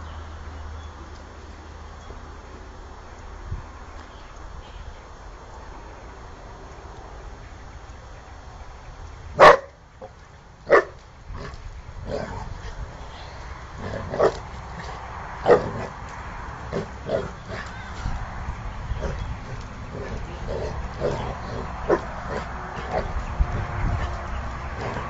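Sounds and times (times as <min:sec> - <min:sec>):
dog barking: 0:09.4 - 0:09.8, 0:10.7 - 0:11.0, 0:14.1 - 0:14.4, 0:15.4 - 0:15.9.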